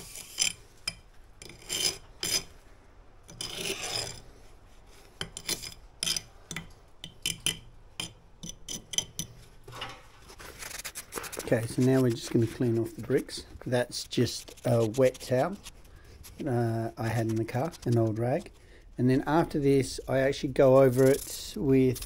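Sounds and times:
jointing tool scraping wet mortar: 0.0 - 2.5, 3.3 - 6.6, 10.5 - 22.0.

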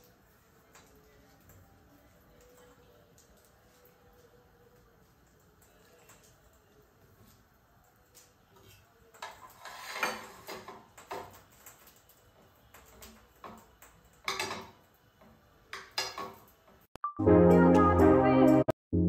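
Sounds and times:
knife clinking and scraping on plate: 9.3 - 10.7.

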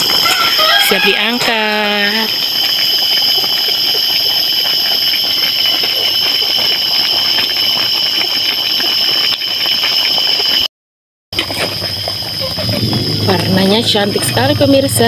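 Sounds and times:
chicken sizzling in a wok: 0.0 - 10.7.

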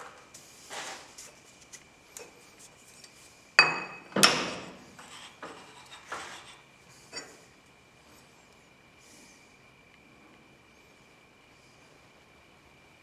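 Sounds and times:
metal knocks and scrapes: 4.1 - 6.6.

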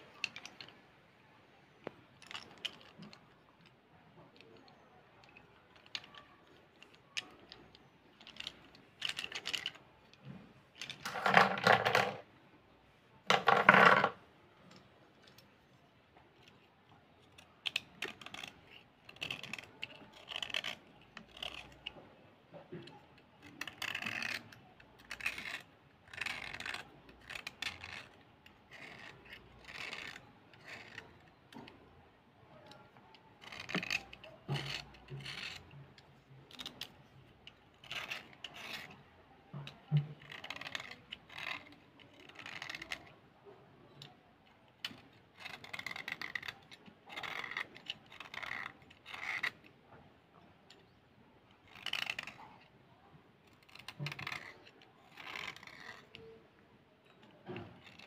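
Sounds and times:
metal blade scraping slate: 7.2 - 12.2, 33.5 - 35.7.

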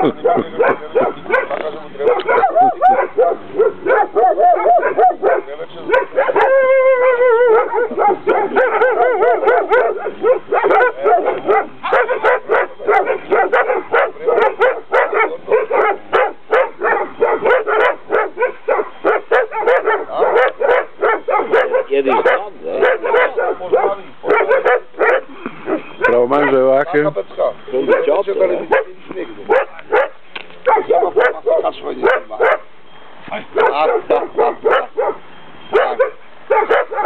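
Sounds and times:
dogs barking excitedly: 0.0 - 37.0
dog howling: 0.2 - 26.6.

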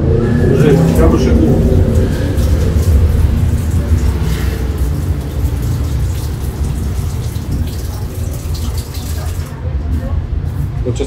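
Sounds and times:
tap water running into sink: 0.9 - 9.6.

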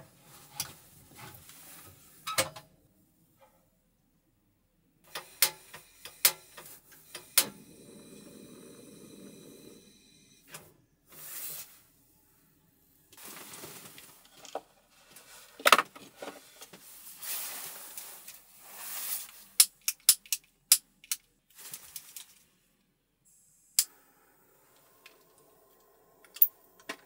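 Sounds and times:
rustling: 13.1 - 19.6, 21.5 - 22.7.

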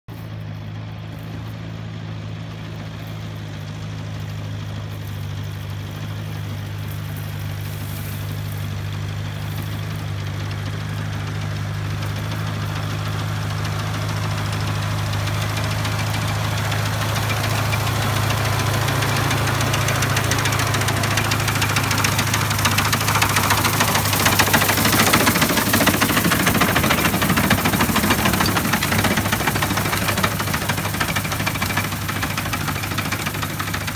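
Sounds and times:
tractor engine running: 0.0 - 33.9.

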